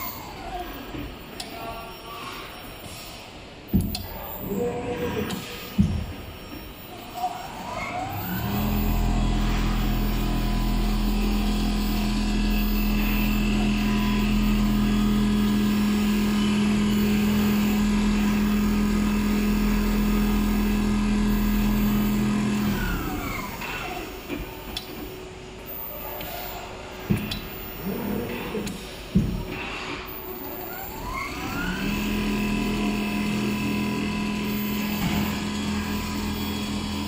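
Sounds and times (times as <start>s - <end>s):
sewing machine humming: 8.0s - 24.2s, 30.9s - 37.0s.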